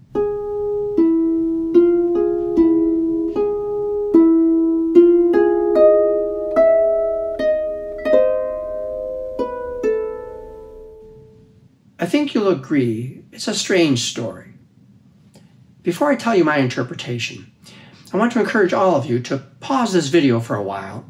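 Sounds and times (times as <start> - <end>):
slow plucked string melody: 0.0 - 11.4.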